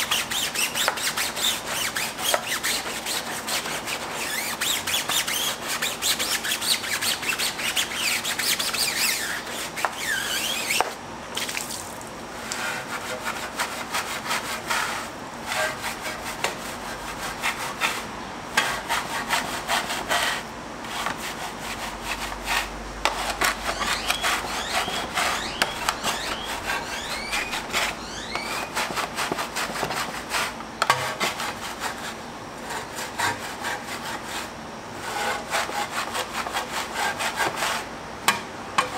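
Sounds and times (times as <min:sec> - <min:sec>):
brush squeaks: 0:00.0 - 0:10.9, 0:23.0 - 0:30.1
brush scrubbing wet wheel: 0:12.5 - 0:37.9.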